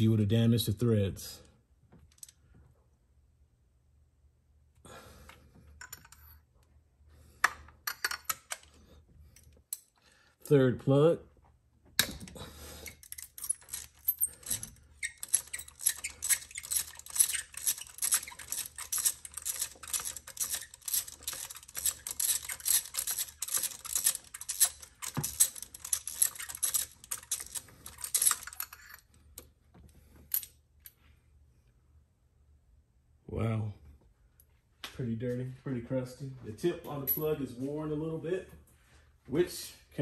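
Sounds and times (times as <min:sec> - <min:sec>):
hand ratchet clicking: 0:12.8 - 0:28.7.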